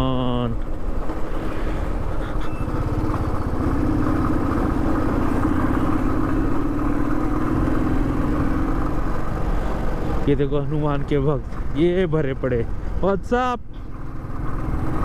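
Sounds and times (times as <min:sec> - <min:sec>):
road and wind noise: 0:00.0 - 0:15.0
motorcycle engine running: 0:02.0 - 0:11.2, 0:13.8 - 0:15.0.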